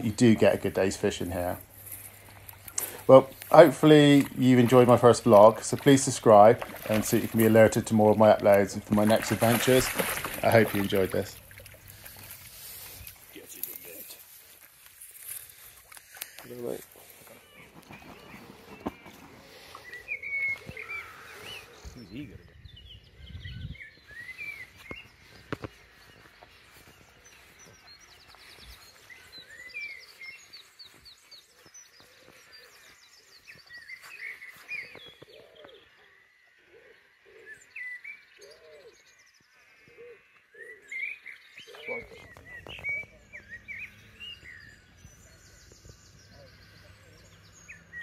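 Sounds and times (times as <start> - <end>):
faint outdoor background: 0.0 - 48.0
songbirds chirping and singing: 0.0 - 48.0
lower bird call: 15.4 - 48.0.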